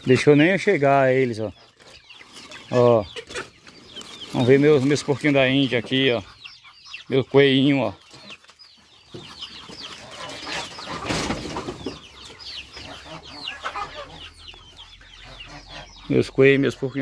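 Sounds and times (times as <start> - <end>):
chickens peeping: 0.0 - 17.0.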